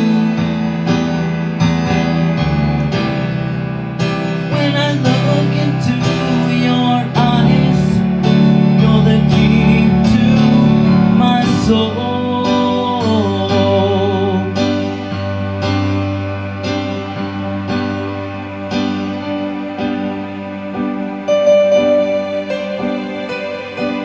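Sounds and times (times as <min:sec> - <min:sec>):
synthesizer chords: 0:00.0 - 0:24.0
man singing: 0:04.5 - 0:14.8.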